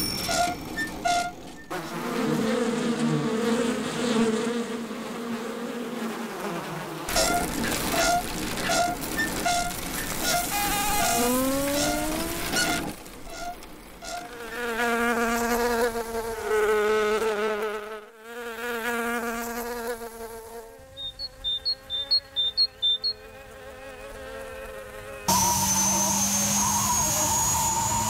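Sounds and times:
cartoon insect wing buzz: 0:01.7 - 0:28.0
short high chirps: 0:21.0 - 0:23.2.

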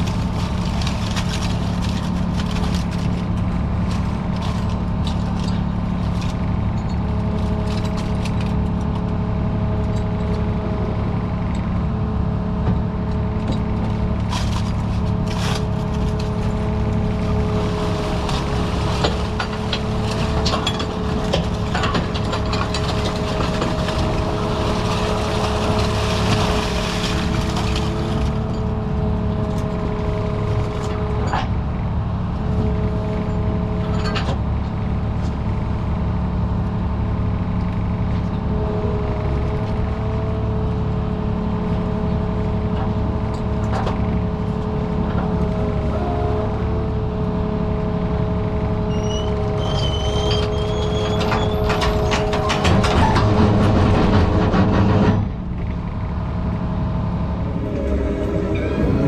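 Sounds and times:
low engine drone: 0:00.0 - 0:59.0
two-note whine: 0:57.3 - 0:59.0.

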